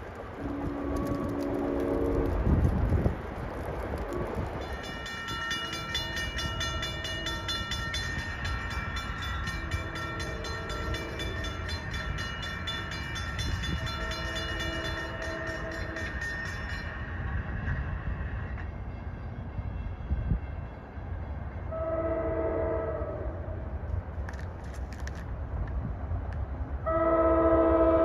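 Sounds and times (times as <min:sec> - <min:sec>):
train horn blasts: 0:00.4 - 0:02.6, 0:09.1 - 0:12.4, 0:13.4 - 0:16.4, 0:21.6 - 0:23.7, 0:26.8 - 0:28.0.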